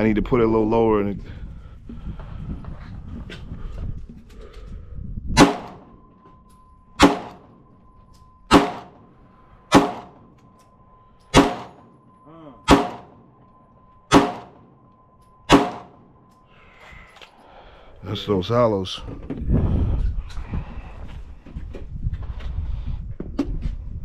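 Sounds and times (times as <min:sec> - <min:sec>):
pistol shots with echo: 0:05.4 - 0:05.9, 0:07.0 - 0:07.6, 0:08.5 - 0:09.1, 0:09.7 - 0:10.3, 0:11.3 - 0:11.9, 0:12.6 - 0:13.3, 0:14.1 - 0:14.8, 0:15.5 - 0:16.1.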